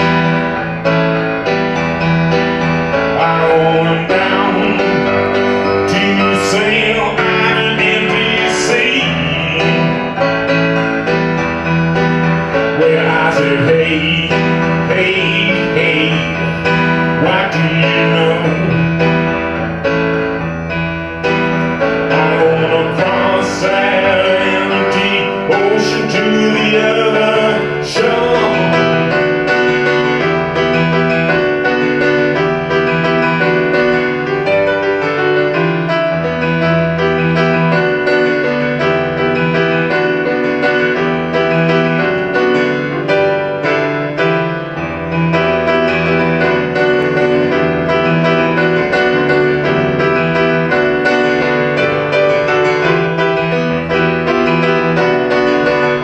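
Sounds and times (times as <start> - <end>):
grand piano playing: 0.0 - 56.0
man singing: 3.0 - 10.4, 12.5 - 19.4, 22.1 - 29.4.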